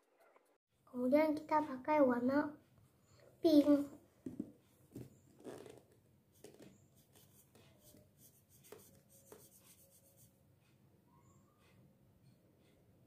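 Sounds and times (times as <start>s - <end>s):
marker scratching on paper: 6.3s - 10.4s.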